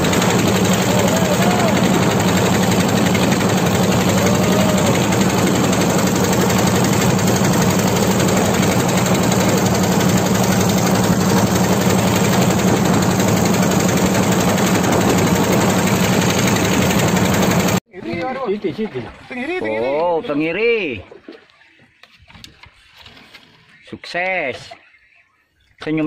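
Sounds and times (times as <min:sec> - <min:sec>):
boat engine drone: 0:00.0 - 0:17.8.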